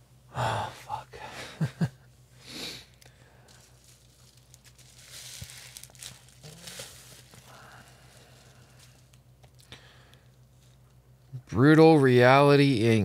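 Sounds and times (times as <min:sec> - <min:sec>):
person breathing: 0:00.3 - 0:01.6, 0:02.3 - 0:03.9, 0:06.4 - 0:10.4
packaging rustling and crinkling: 0:03.4 - 0:09.7.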